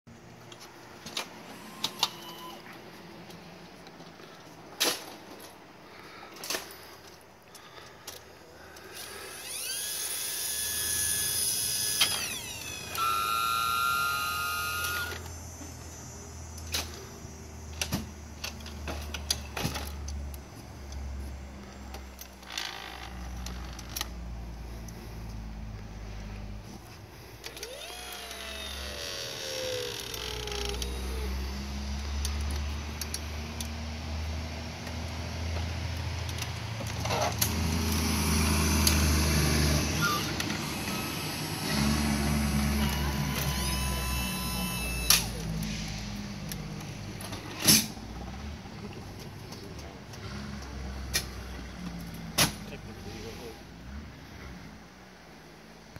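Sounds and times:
electric-hydraulic motor whine: 0:01.0 - 0:02.7, 0:08.8 - 0:20.4, 0:27.4 - 0:33.3, 0:37.1 - 0:48.5.

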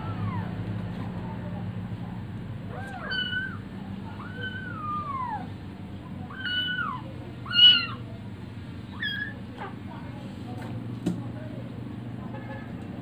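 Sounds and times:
kitten meowing: 0:02.7 - 0:05.5, 0:06.3 - 0:08.0, 0:08.9 - 0:09.4.

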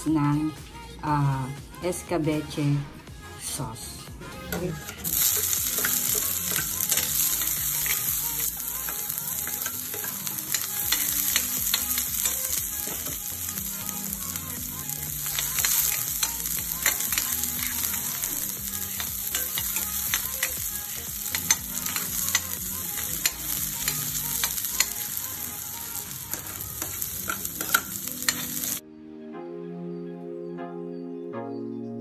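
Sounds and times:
onion sizzling in hot oil: 0:04.8 - 0:28.8.

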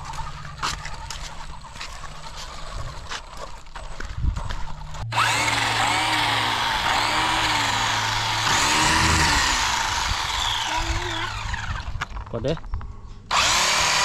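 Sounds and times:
electric toy car motor whining: 0:04.9 - 0:12.1, 0:13.3 - 0:14.0.

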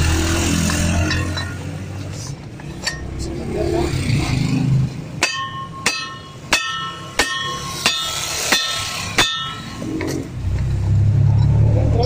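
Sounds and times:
hammer striking steel: 0:00.4 - 0:01.9, 0:02.6 - 0:03.2, 0:05.1 - 0:10.4.

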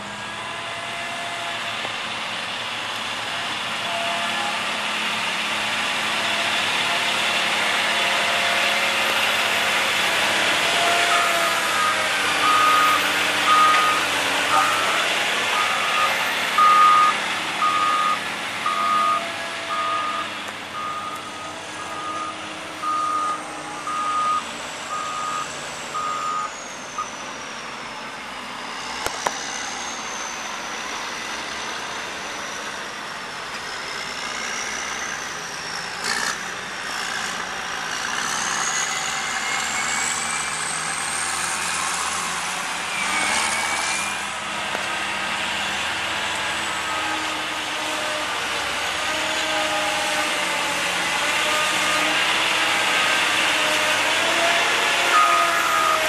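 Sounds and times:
diesel engine under load: 0:00.0 - 0:56.0
backup alarm beeping: 0:15.6 - 0:26.5.

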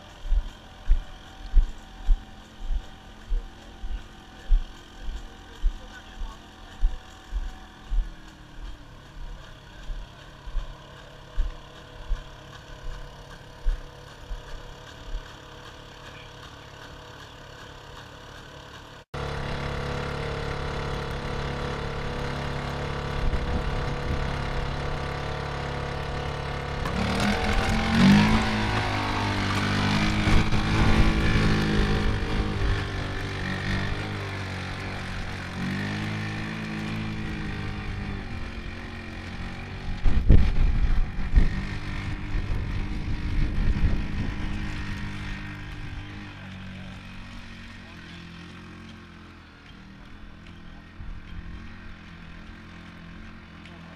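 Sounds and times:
regular low thumps: 0:00.2 - 0:10.8, 0:11.4 - 0:15.2.

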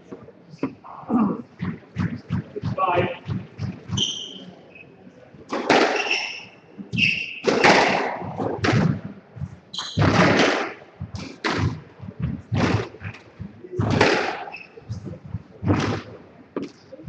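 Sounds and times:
shoes squeaking on wooden floor: 0:01.7 - 0:04.8, 0:05.8 - 0:08.6, 0:09.4 - 0:16.8
squash ball hits: 0:05.5 - 0:09.1, 0:09.7 - 0:13.2, 0:13.8 - 0:16.7.

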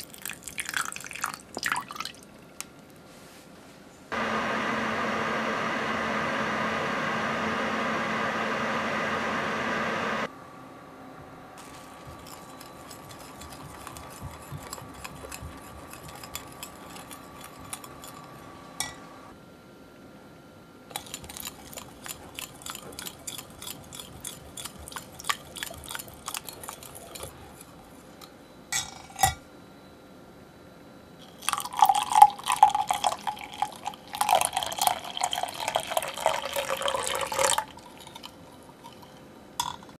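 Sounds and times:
liquid pouring into glass cup: 0:00.0 - 0:02.2, 0:31.4 - 0:39.0.

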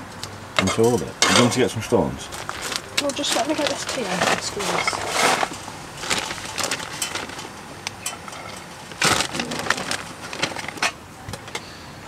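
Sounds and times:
plastic bag crinkling: 0:02.2 - 0:11.0
rice crackling in frying pan: 0:02.2 - 0:11.0.

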